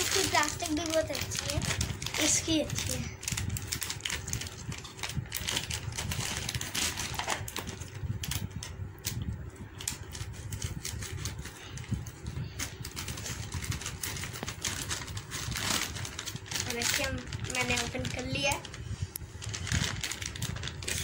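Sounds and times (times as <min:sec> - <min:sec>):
plastic packaging crackling: 0:00.0 - 0:21.0.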